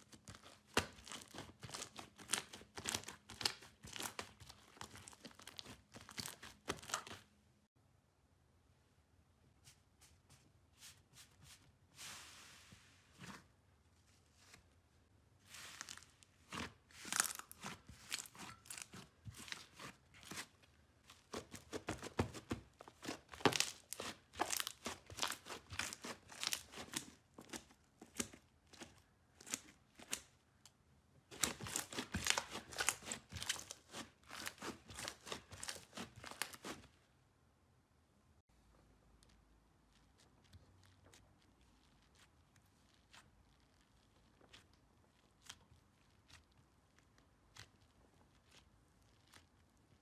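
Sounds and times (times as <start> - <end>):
slime crackling and popping: 0.1 - 7.2, 15.6 - 20.5, 21.2 - 30.3, 31.3 - 36.8.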